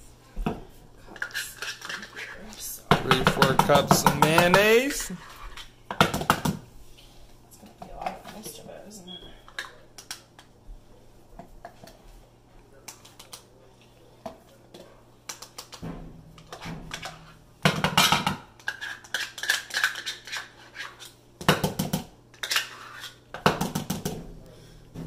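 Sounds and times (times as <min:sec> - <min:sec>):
spoon scraping a bowl: 0:01.1 - 0:02.4, 0:18.6 - 0:21.1, 0:22.4 - 0:23.2.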